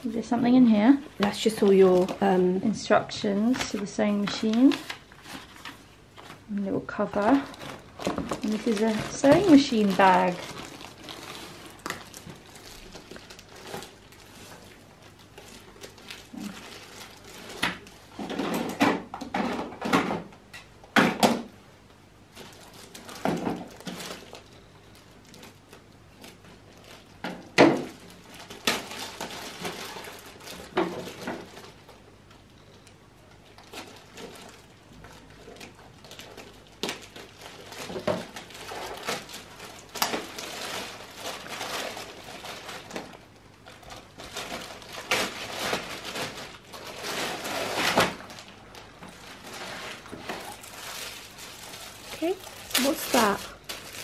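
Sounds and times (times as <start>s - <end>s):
plastic packaging crinkling: 0.0s - 19.9s, 22.2s - 54.0s
scissors cutting plastic: 7.2s - 19.3s, 33.5s - 48.4s, 51.7s - 54.0s.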